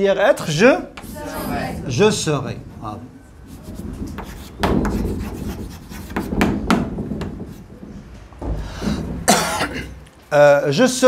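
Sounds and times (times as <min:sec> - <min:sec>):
chalk scratching on blackboard: 0:03.4 - 0:06.5.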